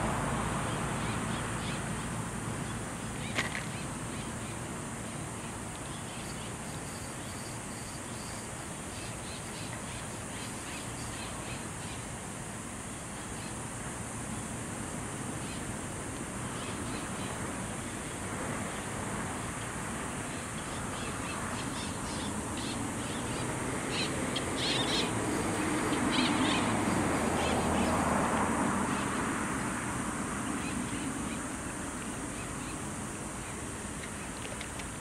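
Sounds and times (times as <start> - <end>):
steady hiss: 0.0 - 35.0
birds chirping: 20.2 - 28.0.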